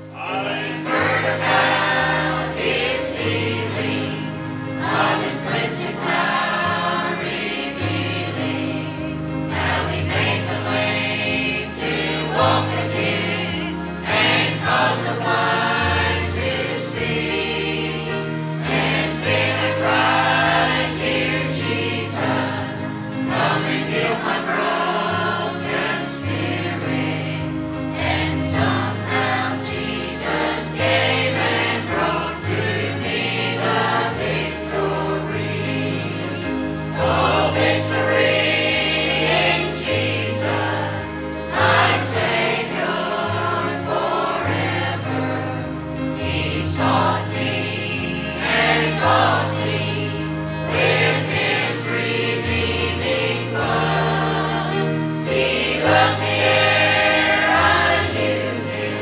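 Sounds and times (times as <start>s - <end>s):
choir singing gospel: 0.0s - 59.0s.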